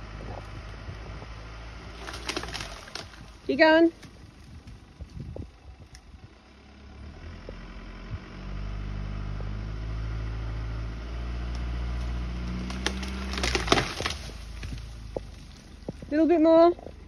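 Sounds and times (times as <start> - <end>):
vehicle engine pulling under load: 0.0 - 17.0
wood cracking and splintering: 1.8 - 6.0, 11.5 - 17.0.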